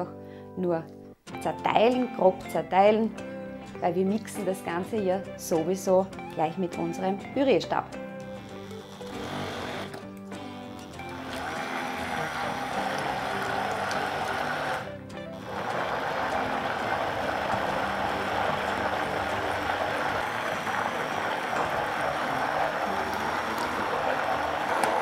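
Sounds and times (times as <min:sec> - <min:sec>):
background music: 0:00.0 - 0:25.0
immersion blender running: 0:08.3 - 0:25.0.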